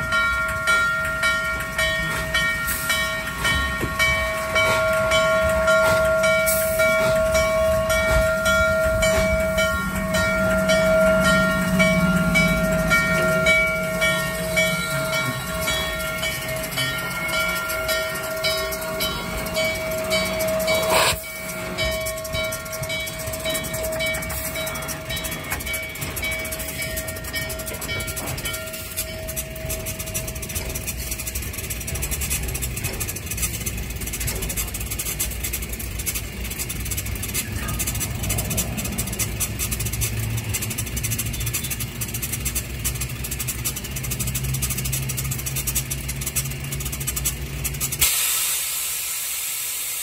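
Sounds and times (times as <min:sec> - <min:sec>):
steam locomotive passing: 0:00.0 - 0:50.0
steady tone: 0:00.1 - 0:31.6
low hum: 0:01.6 - 0:41.4.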